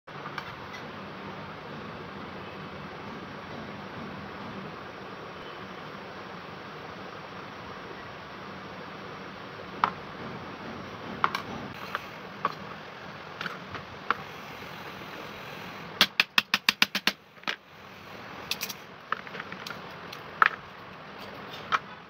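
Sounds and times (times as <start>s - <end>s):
hammer knocking on metal: 9.8s - 11.8s.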